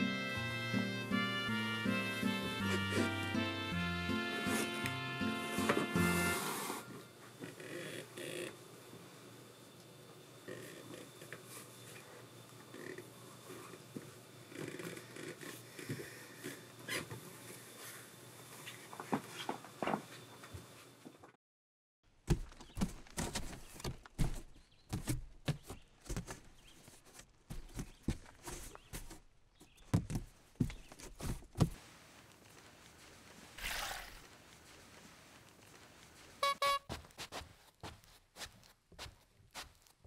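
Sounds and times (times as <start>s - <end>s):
sharp footsteps: 22.3s - 31.9s, 32.5s - 40.0s.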